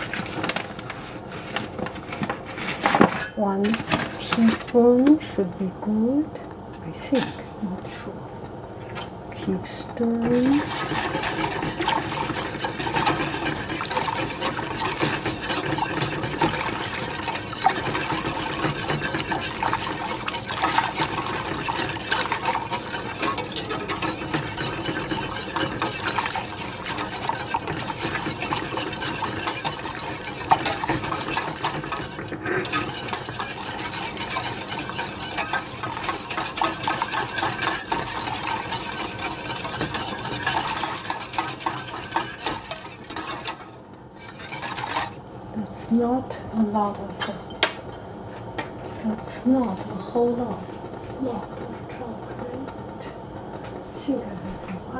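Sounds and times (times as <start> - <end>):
wire whisk scraping a saucepan: 10.0 - 45.2.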